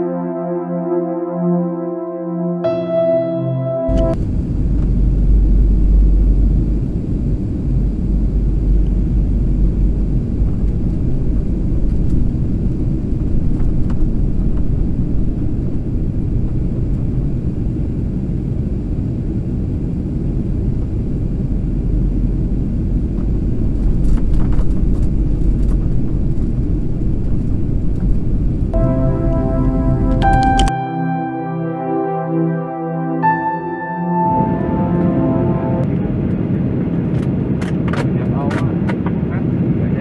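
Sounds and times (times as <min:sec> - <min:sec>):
jet cabin engine rumble: 0:03.9 - 0:30.3.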